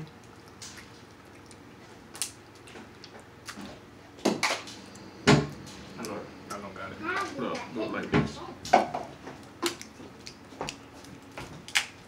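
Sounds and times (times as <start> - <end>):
crab shells cracking by hand: 0.1 - 5.0, 9.3 - 12.0.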